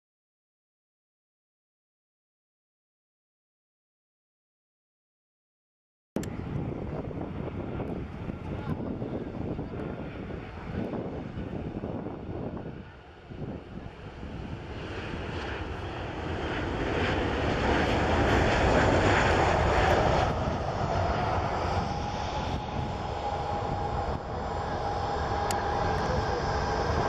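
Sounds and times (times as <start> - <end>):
high engine whine: 6.2 - 27.0
jet engine roar: 6.2 - 27.0.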